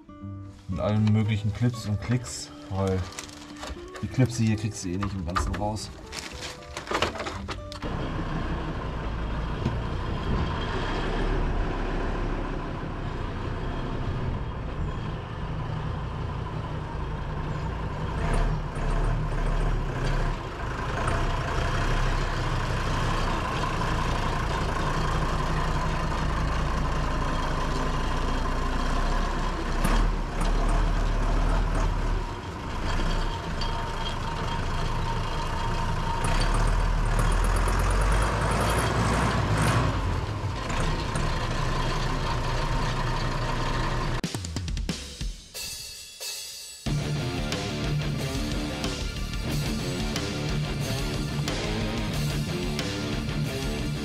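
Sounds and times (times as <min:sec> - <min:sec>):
tractor diesel engine running: 0:00.0 - 0:44.2, 0:46.9 - 0:54.0.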